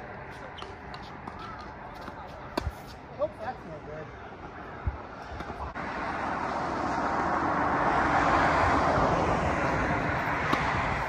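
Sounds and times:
distant engine passing by: 5.3 - 11.0.

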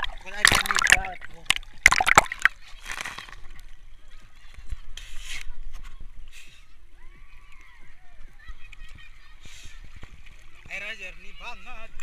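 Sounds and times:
water splashing and sloshing: 0.0 - 3.9, 8.6 - 11.6.

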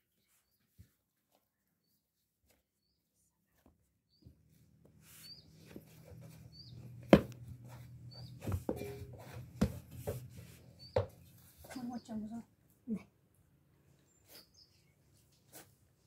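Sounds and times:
bird chirping: 5.1 - 9.2, 10.6 - 12.4, 13.9 - 15.1.

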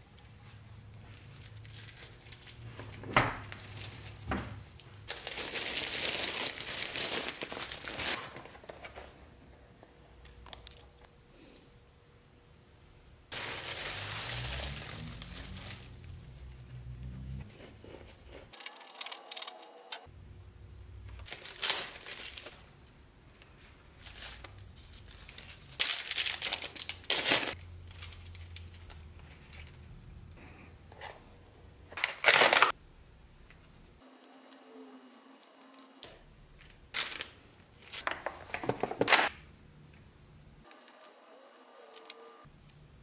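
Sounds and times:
plastic packaging crinkling: 0.9 - 4.3, 5.0 - 9.1, 13.3 - 16.6, 21.2 - 22.8, 23.5 - 29.9, 32.0 - 32.8, 36.9 - 39.3.

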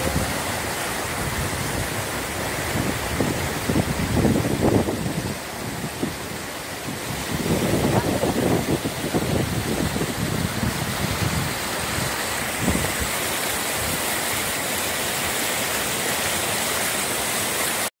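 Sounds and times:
wind buffeting microphone: 0.0 - 13.2
stream rushing over boulders: 0.0 - 17.9.

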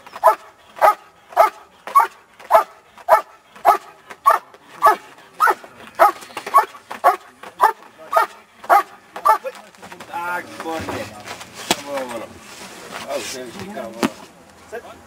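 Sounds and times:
dog barking rhythmically: 0.2 - 9.5.

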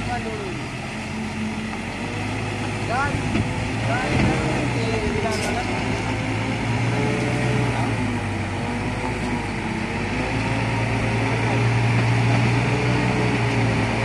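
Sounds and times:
truck diesel engine under load: 0.0 - 14.0.

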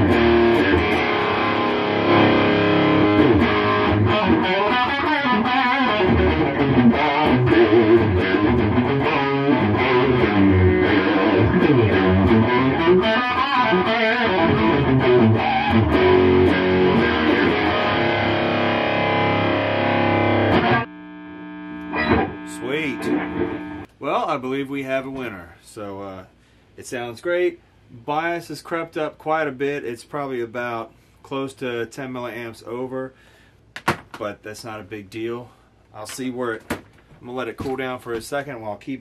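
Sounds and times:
electric guitar riffing: 0.0 - 23.9.

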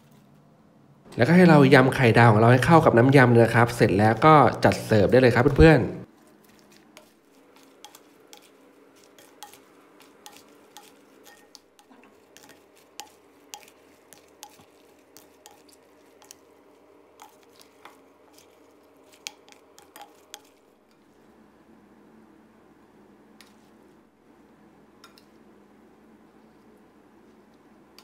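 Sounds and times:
spoon clinking against glass bowl: 9.2 - 14.7.

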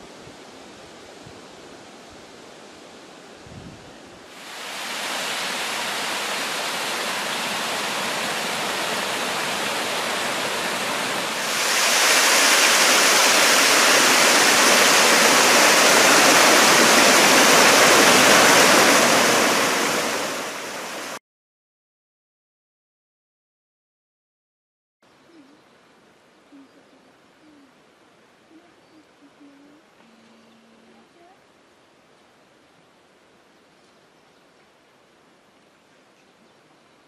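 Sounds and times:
stream rushing over rocks: 4.3 - 21.2.

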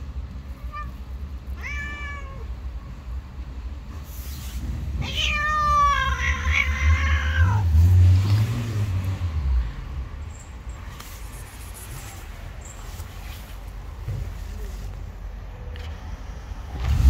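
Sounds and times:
cat meowing: 0.5 - 2.6, 5.0 - 7.7.

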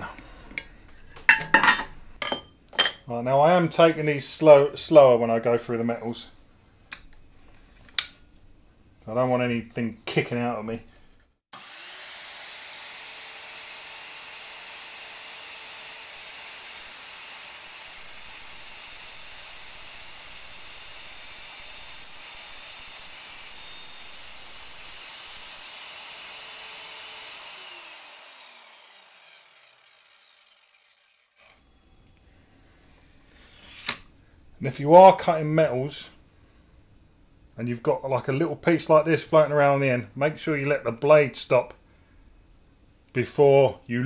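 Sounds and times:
mitre saw cutting metal: 11.5 - 31.9.

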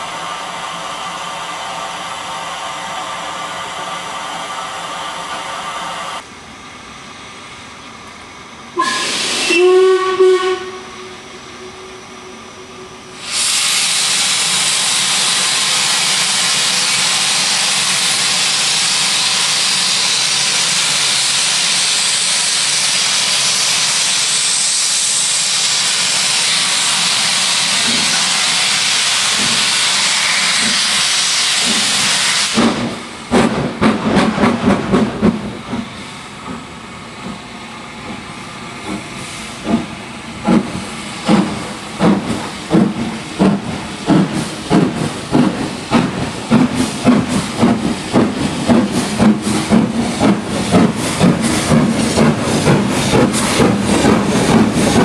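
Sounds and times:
steam locomotive whistle: 8.8 - 15.6
steam hissing: 8.8 - 55.0.

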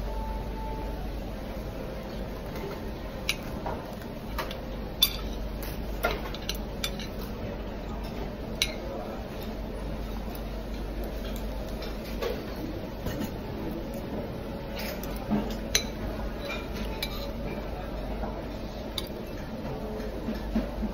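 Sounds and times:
low room hum: 0.0 - 20.9
cutlery clinking on plates: 14.7 - 17.7.

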